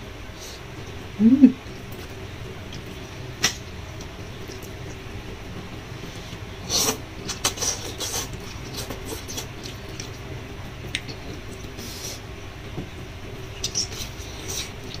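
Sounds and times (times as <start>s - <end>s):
steady low hum: 0.0s - 15.0s
chewing: 7.3s - 10.2s.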